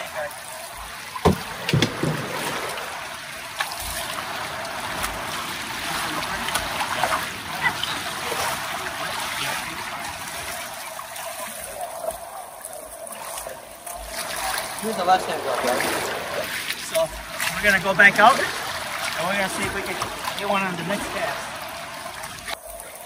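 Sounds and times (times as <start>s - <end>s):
river water flowing: 0.0s - 23.0s.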